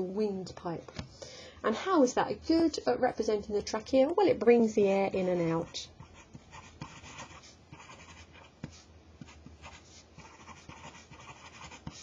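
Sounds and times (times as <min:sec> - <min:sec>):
pen writing on paper: 0:06.0 - 0:12.0.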